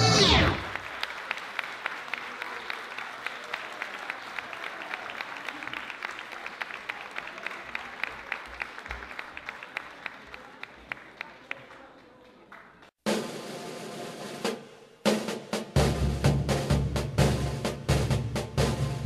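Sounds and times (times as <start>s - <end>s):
loud sound falling in pitch: 0.0s - 0.8s
audience applauding: 0.0s - 13.0s.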